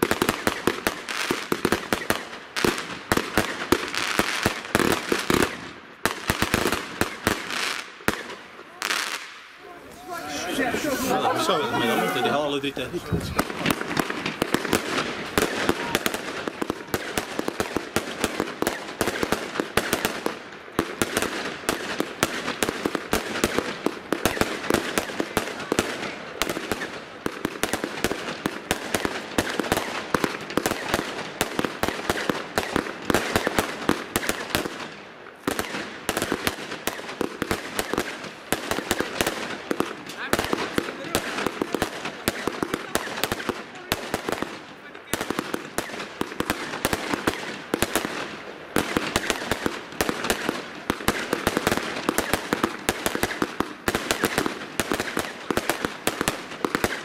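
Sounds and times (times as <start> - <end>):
fireworks bangs and crackles: 0.0 - 57.0.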